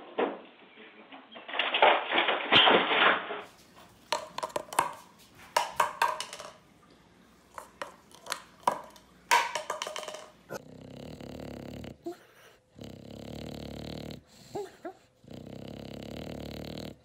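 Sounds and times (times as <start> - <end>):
parrot beak pecking countertop: 3.8 - 6.7, 7.5 - 10.6.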